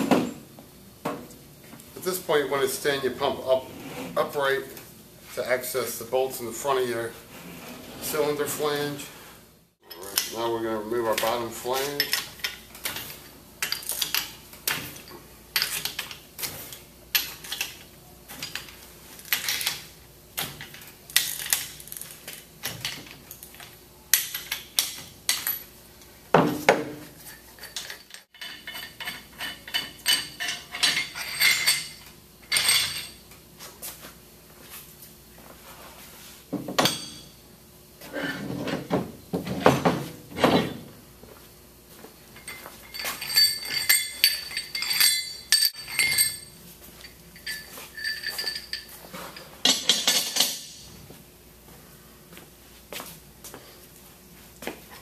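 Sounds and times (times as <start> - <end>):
metal clinks and clicks: 42.4 - 50.8.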